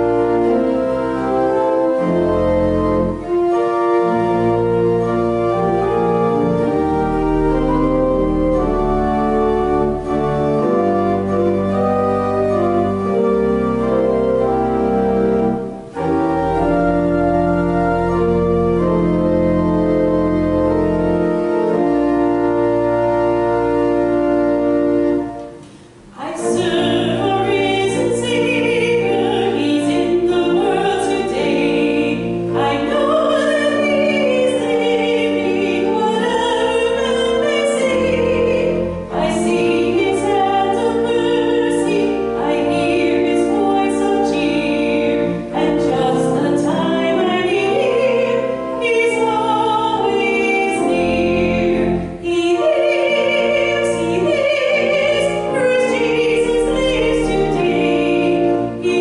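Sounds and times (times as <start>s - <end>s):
pipe organ chords: 0.0s - 59.0s
woman singing a hymn: 26.1s - 59.0s.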